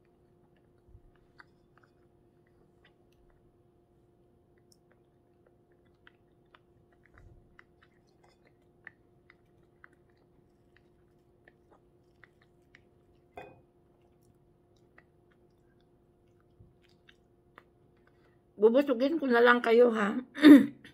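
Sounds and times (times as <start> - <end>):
person chewing: 0.0 - 18.6
faint steady hum: 0.0 - 20.9.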